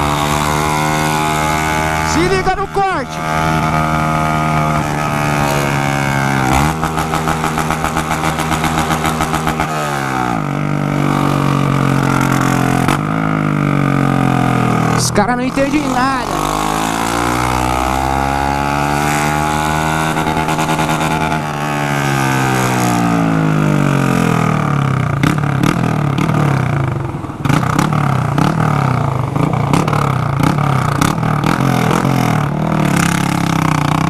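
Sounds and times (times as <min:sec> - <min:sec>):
motorcycle engine revving: 0:00.0 - 0:34.0.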